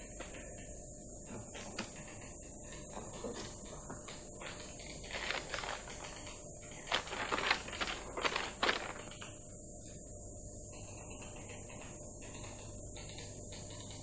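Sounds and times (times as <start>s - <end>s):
paper rustling: 3.4s - 9.4s.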